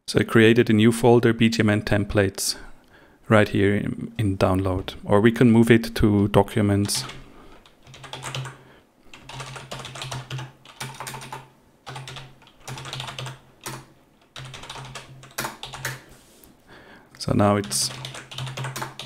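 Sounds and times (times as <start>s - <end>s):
keyboard typing: 6.8s - 16.0s, 17.6s - 19.0s.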